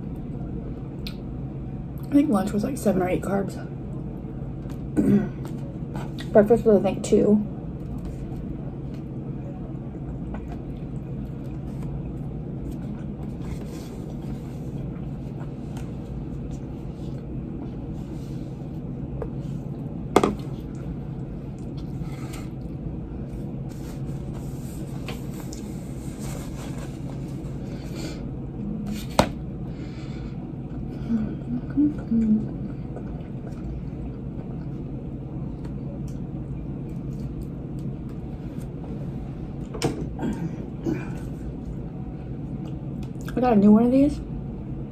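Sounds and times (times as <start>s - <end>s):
low room hum: 0.0s - 44.9s.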